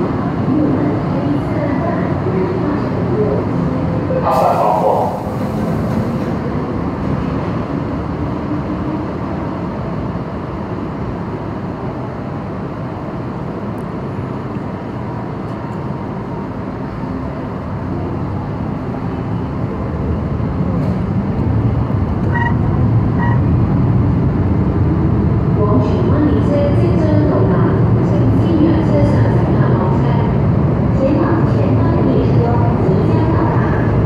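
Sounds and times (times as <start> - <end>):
train wheels rumbling in tunnel: 0.0 - 34.0
brief tones: 22.3 - 22.6.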